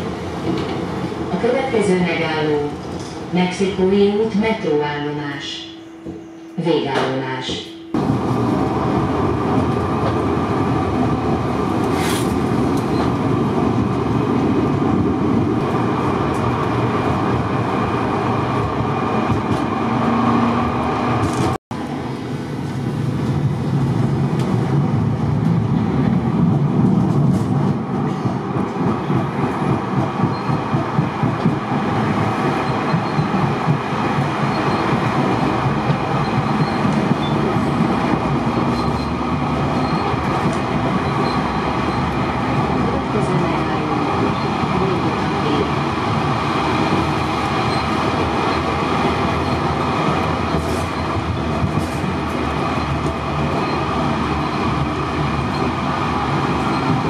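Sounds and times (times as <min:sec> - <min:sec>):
tram wheels rolling on rails: 0:00.0 - 0:04.4, 0:07.9 - 0:57.0
clickety-clack over rail joints: 0:00.3 - 0:01.2, 0:18.6 - 0:20.6, 0:23.2 - 0:45.8, 0:46.8 - 0:57.0.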